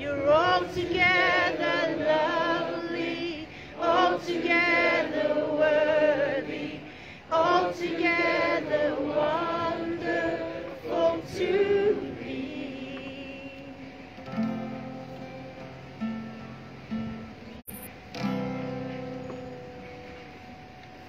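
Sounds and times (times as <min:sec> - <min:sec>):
woman singing unaccompanied: 0:00.0 - 0:14.0
acoustic guitar chord strummed: 0:12.5 - 0:21.0.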